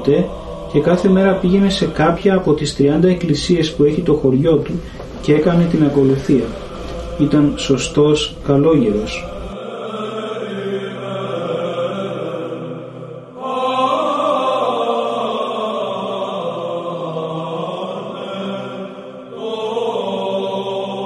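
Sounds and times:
low drone: 0.0 - 13.8
chant melody: 0.0 - 21.0.

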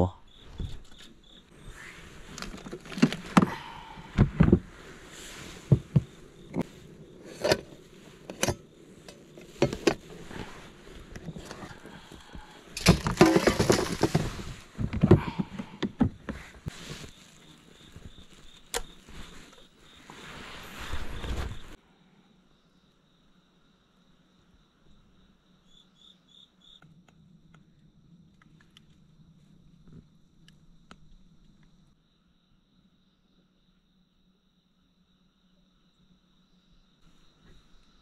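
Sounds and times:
clicks and knocks of camping gear: 2.2 - 19.7
scraping rustle: 4.3 - 15.5, 16.2 - 21.8.

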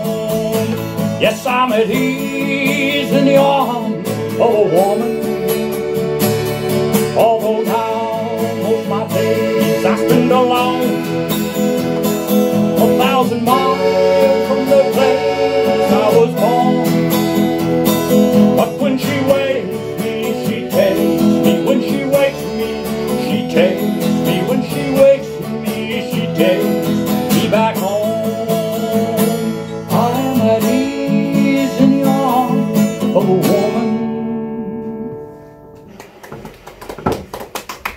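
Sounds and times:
piano accordion playing: 0.0 - 35.9
acoustic guitar strumming: 0.0 - 37.3.

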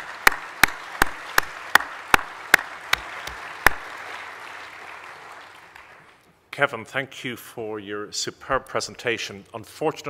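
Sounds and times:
audience applauding: 0.0 - 6.2
loud close clapping: 0.0 - 6.3.

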